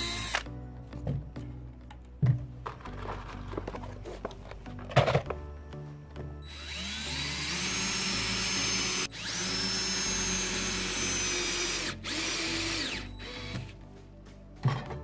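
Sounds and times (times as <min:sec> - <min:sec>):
cordless drill running: 0:00.0 - 0:00.5, 0:06.4 - 0:13.7.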